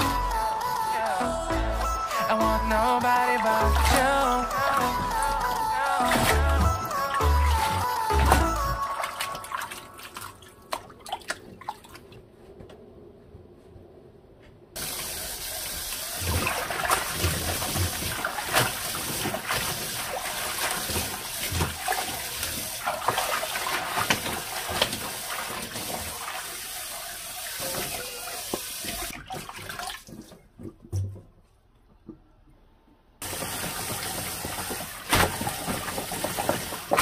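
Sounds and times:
hands rinsing leafy greens: 0:02.9 - 0:12.1, 0:14.8 - 0:30.6, 0:33.2 - 0:37.0.

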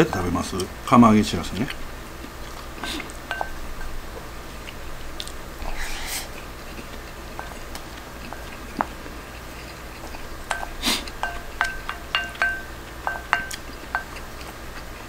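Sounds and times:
chewing: 0:01.5 - 0:15.0
spoon clicking against bowl: 0:10.5 - 0:14.2.

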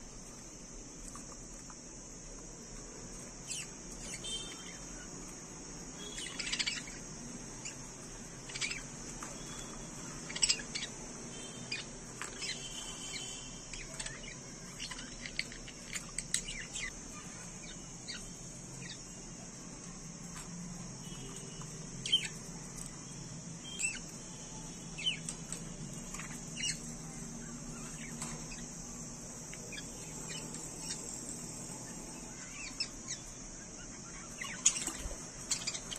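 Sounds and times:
steady high hiss: 0:00.0 - 0:35.9
budgerigars chirping: 0:06.0 - 0:07.8, 0:08.4 - 0:08.9, 0:10.2 - 0:11.0, 0:11.6 - 0:19.0, 0:26.1 - 0:26.9, 0:32.3 - 0:35.9.

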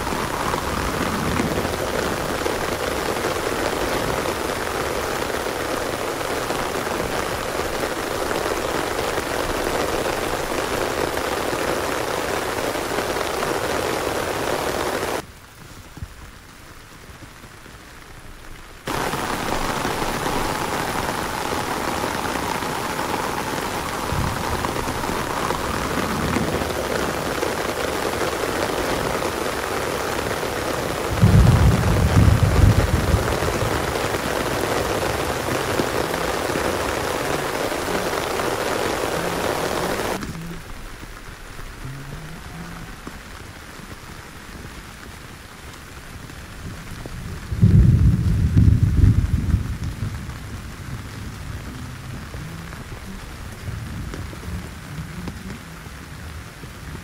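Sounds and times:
heavy rain falling: 0:00.0 - 0:57.0
loud low rumbles: 0:31.1 - 0:36.0, 0:47.1 - 0:55.6.

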